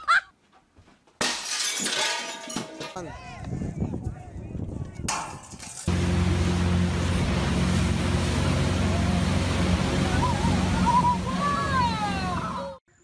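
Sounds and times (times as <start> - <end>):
wind and water rushing: 5.9 - 12.7
boat engine running: 5.9 - 12.8
people shouting and screaming: 9.9 - 12.8.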